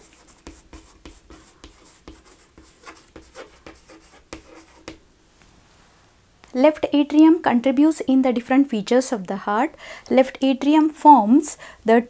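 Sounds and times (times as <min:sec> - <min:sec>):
chalk writing on chalkboard: 0:00.0 - 0:05.0.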